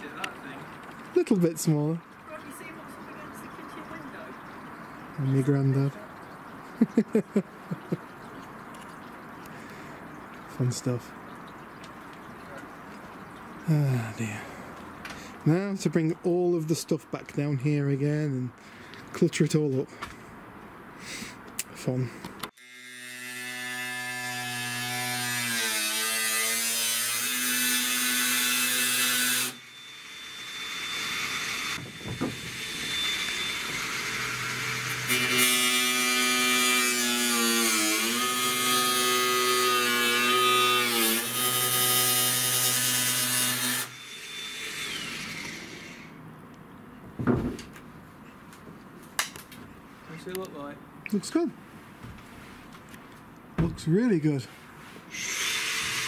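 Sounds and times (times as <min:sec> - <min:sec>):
angle grinder cutting metal: 0:22.6 - 0:46.1, 0:55.1 - 0:56.0
knocks: 0:31.8 - 0:32.6, 0:47.1 - 0:47.8.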